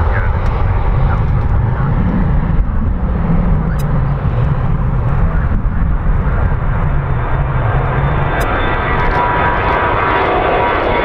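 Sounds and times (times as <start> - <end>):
jet engines at takeoff: 0.0 - 11.0.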